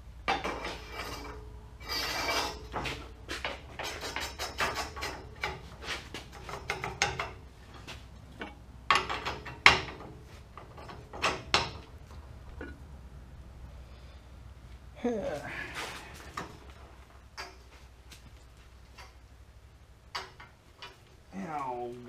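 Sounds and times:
steel rod clanking and scraping: 0.3 - 12.8, 15.7 - 17.8, 18.9 - 19.2, 20.1 - 21.1
sharp metal knocks: 2.5 - 7.5, 8.4 - 12.0.

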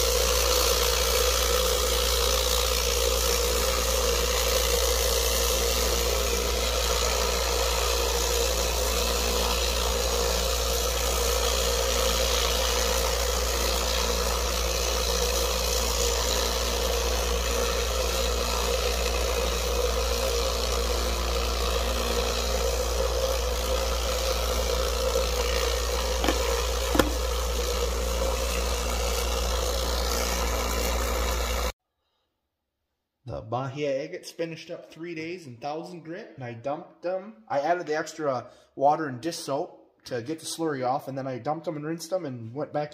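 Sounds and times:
rock tumbler humming: 0.2 - 31.7
brief knocks: 26.2 - 27.2.

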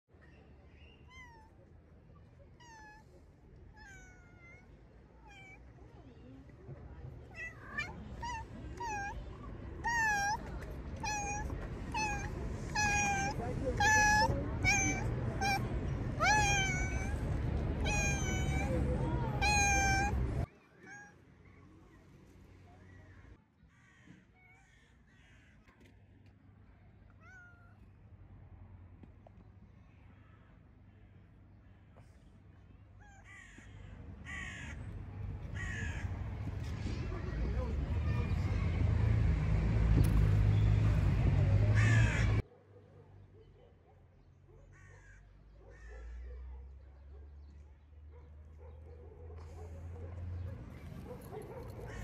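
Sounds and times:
cat meowing: 1.0 - 1.6, 2.6 - 5.8, 7.2 - 21.2, 27.1 - 27.8.

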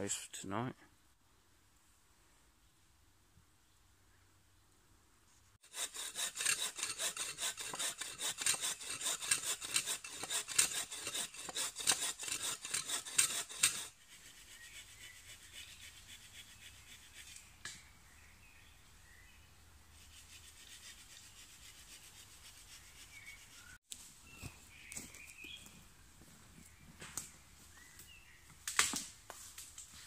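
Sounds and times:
hand saw cutting wood: 5.6 - 17.4.

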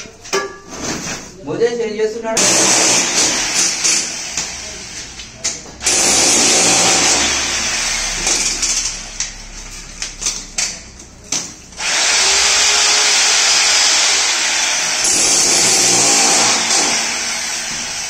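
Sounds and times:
power tool cutting into wall: 2.4 - 5.2, 5.8 - 10.4, 11.8 - 18.0.

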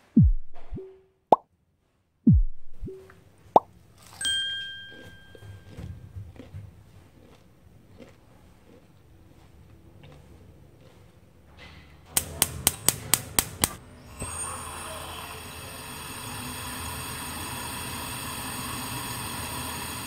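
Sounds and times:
gas stove igniter clicking: 12.2 - 13.8
gas burner whoosh and hiss: 12.2 - 20.0.

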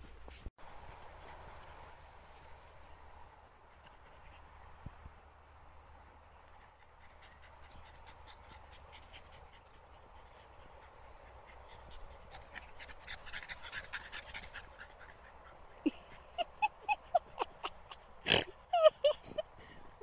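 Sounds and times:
dog panting: 6.2 - 17.9.

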